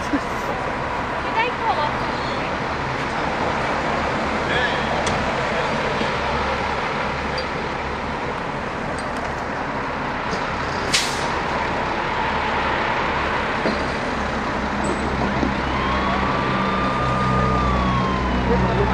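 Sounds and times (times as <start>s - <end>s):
roadside traffic: 0.0s - 18.9s
truck engine idling: 0.0s - 18.9s
air hiss: 10.9s - 11.3s
siren tone: 15.5s - 18.9s.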